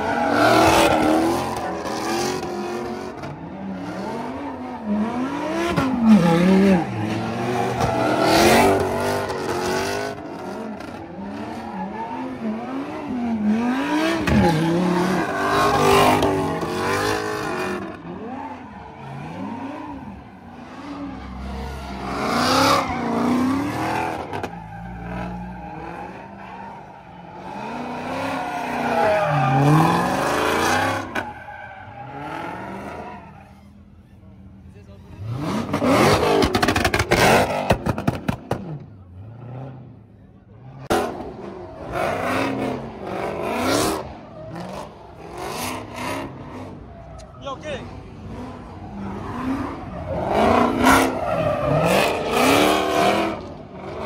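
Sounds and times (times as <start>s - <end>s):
car engines revving: 0.0s - 54.0s
tires squealing: 0.0s - 54.0s.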